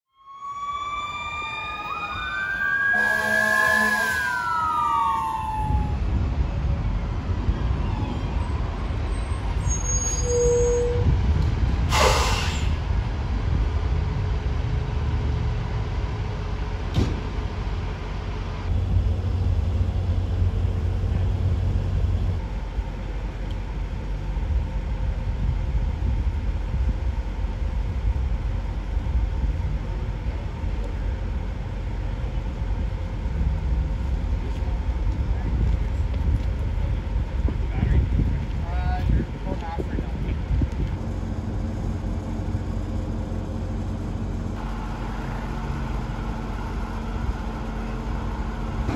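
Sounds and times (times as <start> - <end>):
fire engine siren wailing: 0.1 - 6.5
diesel engine rumbling: 0.5 - 48.9
horn blast: 2.9 - 4.5
air brake hiss: 11.9 - 12.8.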